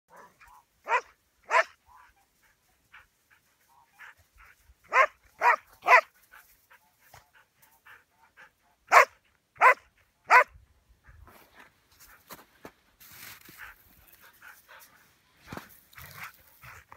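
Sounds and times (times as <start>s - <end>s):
dog barking: 0.1s - 2.1s, 4.9s - 6.1s, 8.9s - 10.6s.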